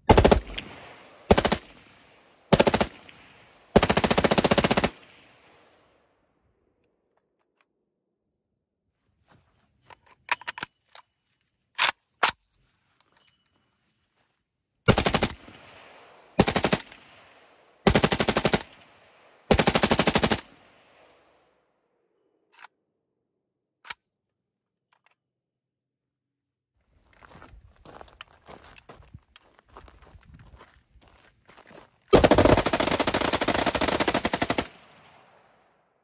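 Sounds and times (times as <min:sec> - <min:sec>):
rifle firing full auto bursts: 0:00.0 - 0:01.9, 0:02.5 - 0:03.1, 0:03.7 - 0:05.1, 0:14.9 - 0:15.5, 0:16.4 - 0:17.0, 0:17.8 - 0:18.8, 0:19.5 - 0:20.6, 0:32.1 - 0:35.1
metallic clacks of rifle handling: 0:09.8 - 0:11.1, 0:11.7 - 0:13.4.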